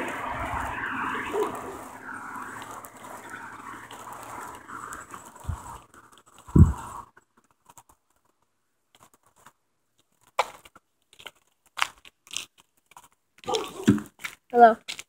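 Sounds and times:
footsteps on asphalt: 0.0 - 7.2, 10.3 - 15.0.

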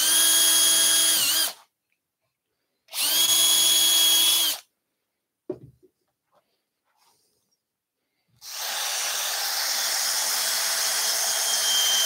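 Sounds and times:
cordless drill whining: 0.0 - 1.6, 2.9 - 4.7, 8.4 - 12.0.

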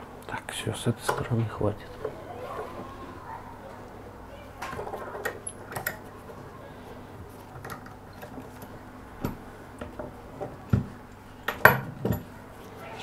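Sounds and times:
tools clicking and clinking: 4.7 - 6.1.

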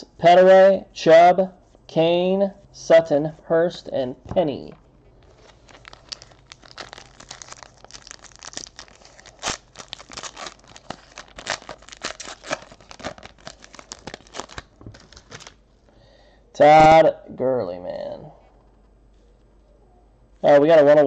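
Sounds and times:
foil wrapper tearing and crinkling: 5.3 - 15.6.

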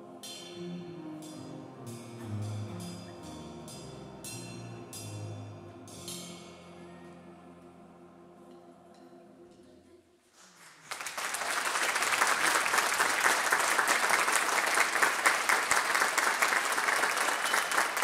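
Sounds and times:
choir and band chord: 0.0 - 9.6
audience applauding: 10.4 - 18.0.

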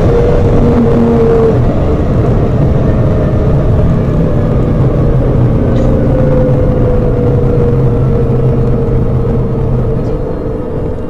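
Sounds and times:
car engine drone inside cabin: 0.0 - 11.0.

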